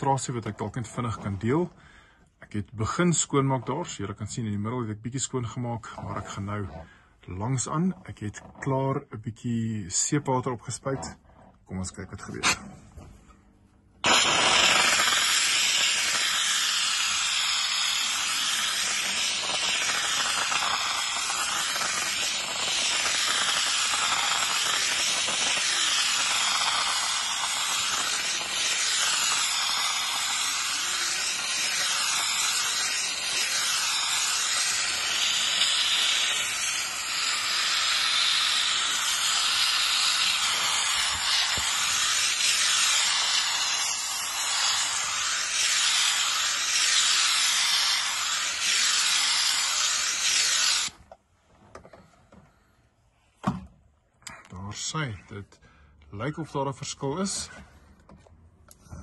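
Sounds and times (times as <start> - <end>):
steam cleaner hissing: 14.0 - 51.0.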